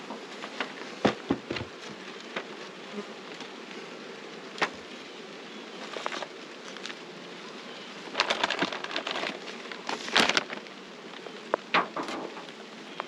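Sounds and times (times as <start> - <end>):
bees humming: 0.0 - 13.0
bag rustling and crinkling: 5.7 - 7.1, 7.8 - 11.2.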